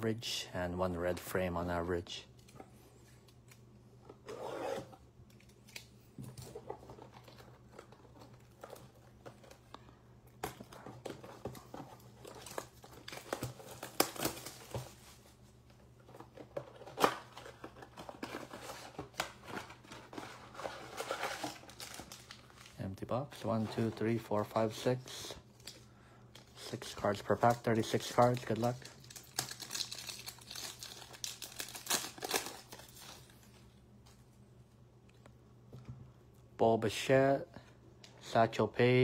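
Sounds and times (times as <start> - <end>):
plastic shrink wrap tearing: 27.3 - 33.3.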